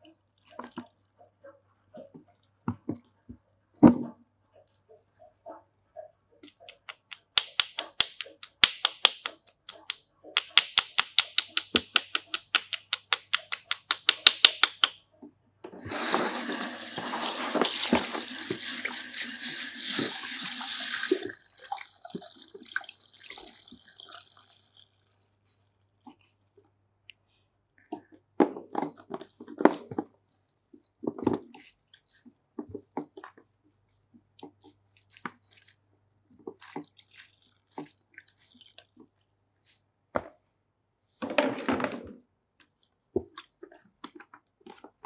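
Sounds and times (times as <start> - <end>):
sharp hand claps: 6.9 - 14.9
water running from tap: 15.8 - 24.8.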